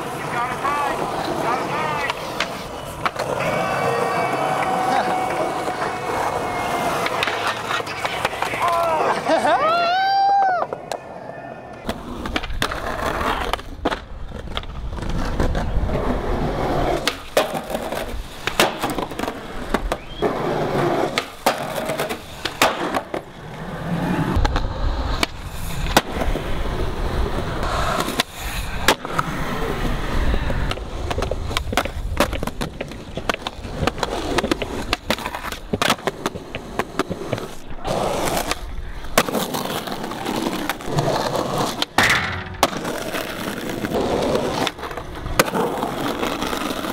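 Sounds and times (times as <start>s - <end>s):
skateboard popping and landing: 0.0s - 9.4s, 11.7s - 46.9s
skateboard wheels rolling: 0.0s - 46.9s.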